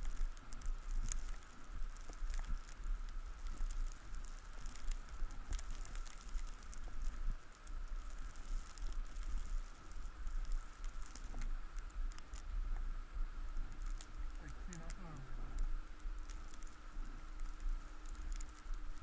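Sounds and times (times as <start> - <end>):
light ticks and crackles: 0.0 - 19.0
wind rumbling on microphone: 0.0 - 19.0
faint high hum: 9.2 - 19.0.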